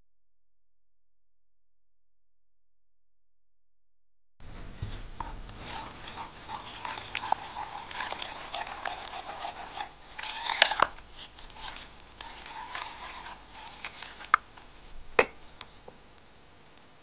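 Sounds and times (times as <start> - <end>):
spatula squelching thick paste: 5.0 - 14.7.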